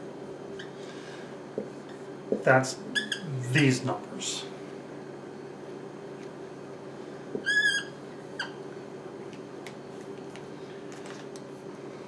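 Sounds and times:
steady low hum: 0.0s - 12.0s
marker squeaking on whiteboard: 2.9s - 3.3s, 7.4s - 8.6s.

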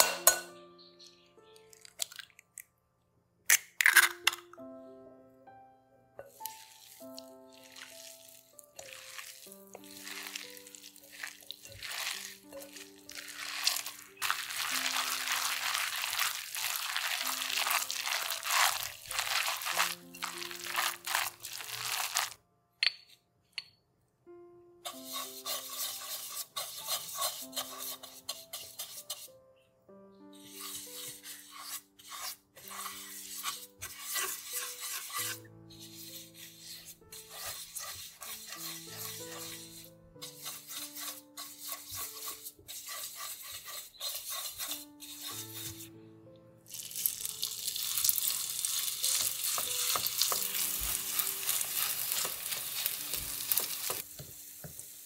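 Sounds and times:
soft background music: 0.0s - 55.0s
hand mixing vegetables in a bowl: 6.3s - 22.4s, 30.6s - 45.8s, 46.7s - 55.0s
pastry brush scrubbing pan: 6.3s - 22.4s, 24.9s - 29.3s, 30.4s - 45.9s, 47.8s - 54.8s.

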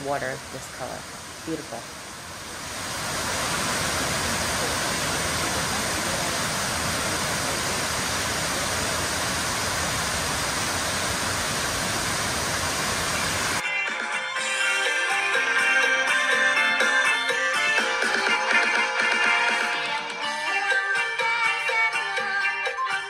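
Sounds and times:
waterfall rushing over rocks: 0.0s - 13.6s.

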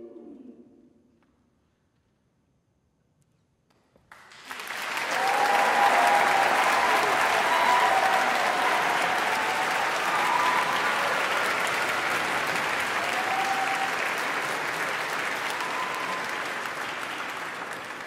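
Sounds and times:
audience applauding: 4.1s - 18.0s.

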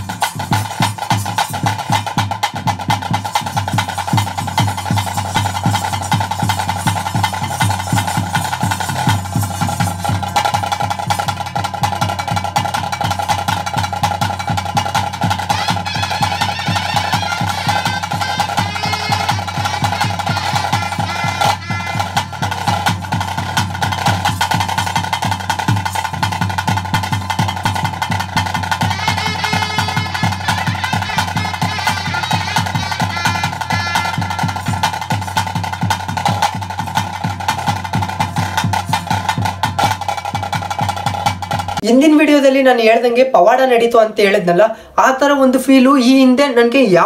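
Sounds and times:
fast drumming: 0.0s - 42.7s
wavering melody: 15.3s - 22.8s, 28.8s - 34.8s
steady held tone: 15.5s - 22.7s, 28.8s - 34.6s.

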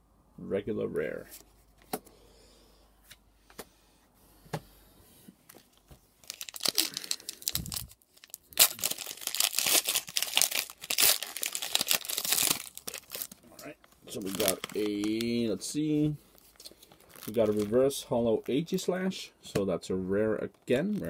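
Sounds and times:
foil wrapper crinkling and tearing: 6.2s - 15.4s, 16.3s - 18.8s.

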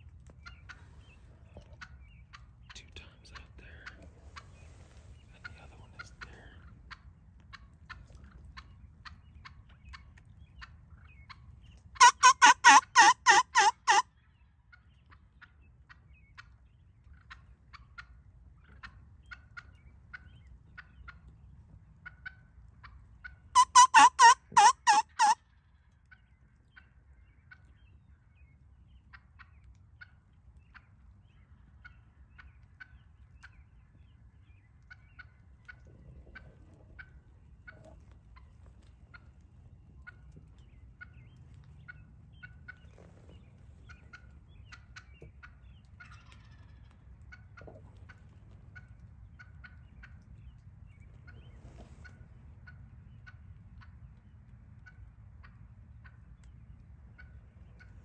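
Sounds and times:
turkey gobbling: 0.2s - 27.8s, 28.4s - 56.5s, 57.1s - 58.0s.

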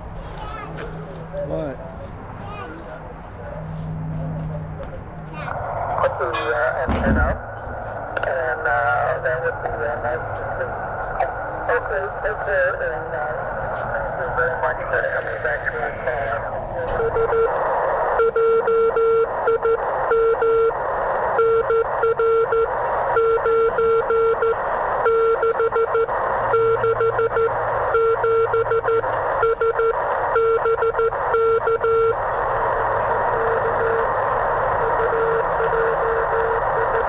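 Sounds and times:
receiver hiss: 8.2s - 37.0s
morse code tone: 16.9s - 17.6s, 18.2s - 37.0s.

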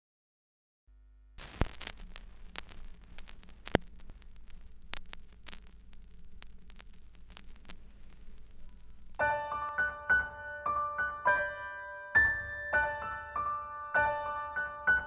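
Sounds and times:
low hum: 0.9s - 9.2s
crackling static with pops: 0.9s - 10.4s, 13.0s - 15.0s.

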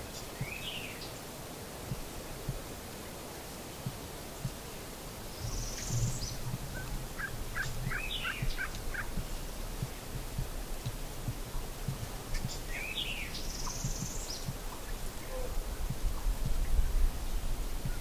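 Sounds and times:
songbirds singing: 0.0s - 18.0s
wild turkey calling: 5.4s - 10.1s.

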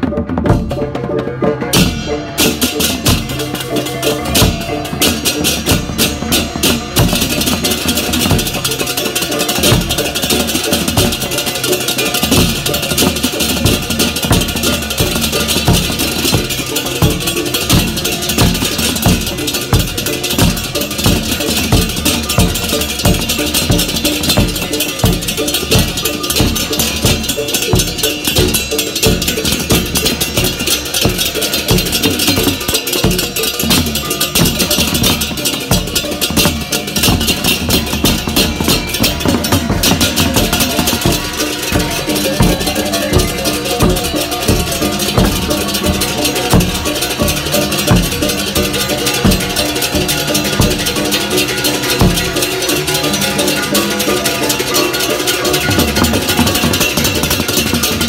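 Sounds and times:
fast drum strokes: 0.0s - 58.0s
hand cymbals clashing: 0.7s - 58.0s
small gongs ringing: 1.6s - 58.0s.

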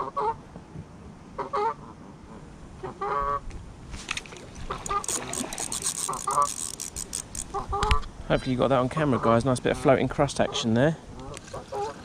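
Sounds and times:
sharp clicks: 4.8s - 8.1s.

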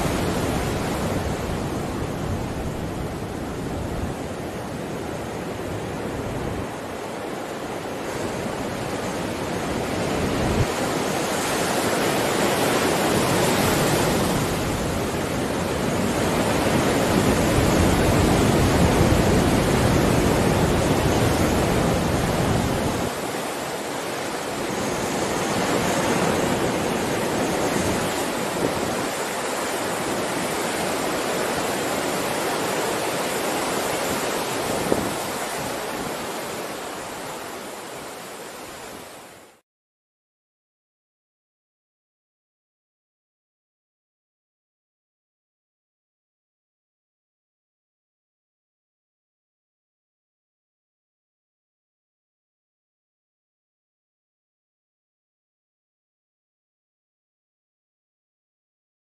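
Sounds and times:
surf breaking on stony shore: 0.0s - 39.6s.

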